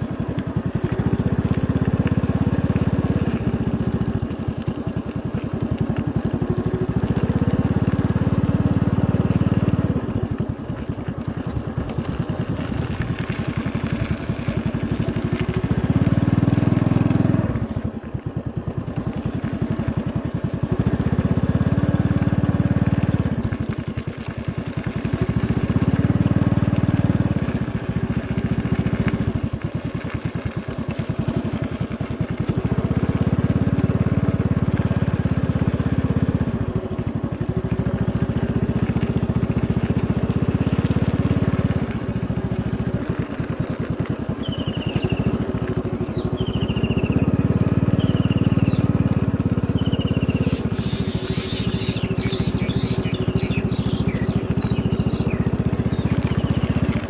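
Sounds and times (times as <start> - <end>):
small motorcycle engine riding: 0.0 - 57.0
bird chirping: 9.4 - 11.6, 28.5 - 35.3, 44.4 - 57.0.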